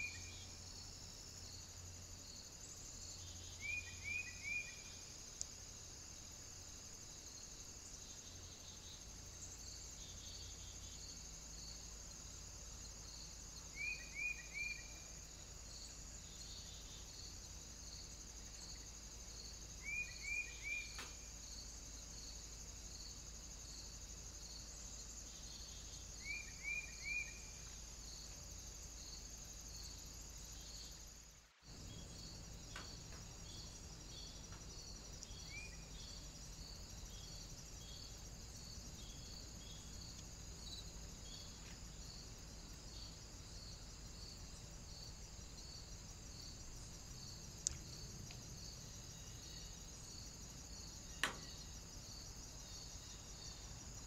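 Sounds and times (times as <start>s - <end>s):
crickets chirping: 0.0s - 54.0s.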